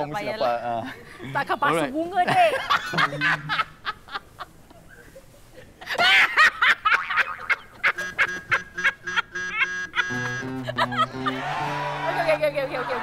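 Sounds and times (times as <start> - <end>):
man laughing in honking bursts: 6.0 - 11.7
background music with held notes: 8.2 - 13.0.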